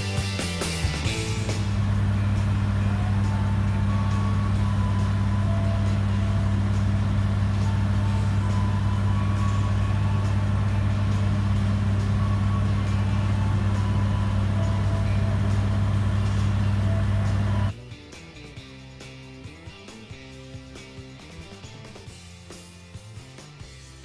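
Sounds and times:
idling train low drone: 0.0s - 22.5s.

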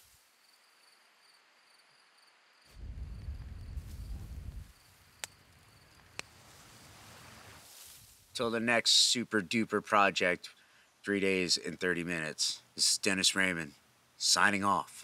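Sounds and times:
crickets chirping: 0.0s - 7.6s
low rumble: 2.8s - 4.7s.

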